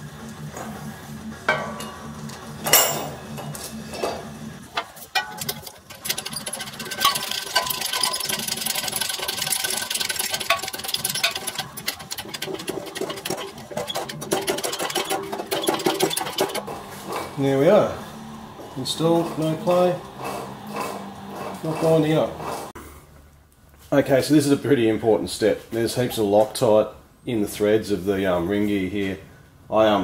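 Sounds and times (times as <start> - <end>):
rapid mechanical chatter: 0.0 - 22.8
metal clunks: 1.5 - 6.0.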